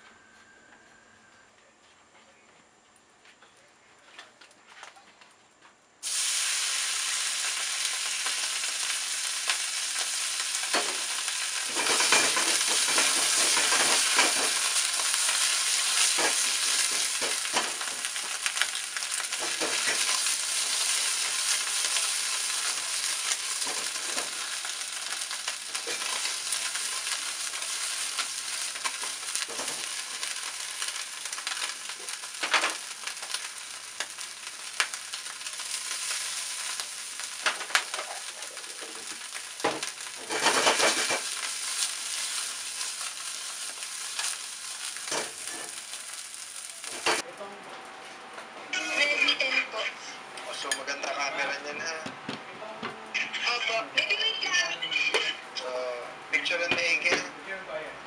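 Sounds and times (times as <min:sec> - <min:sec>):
mushrooms sizzling in oil: 0:06.0 - 0:47.6.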